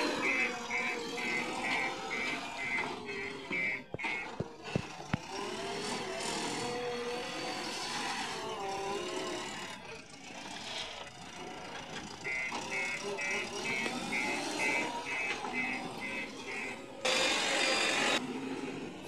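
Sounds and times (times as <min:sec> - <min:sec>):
reversing alarm beeping: 0:00.0 - 0:05.2, 0:12.1 - 0:18.2
diesel engine running hard: 0:00.0 - 0:19.0.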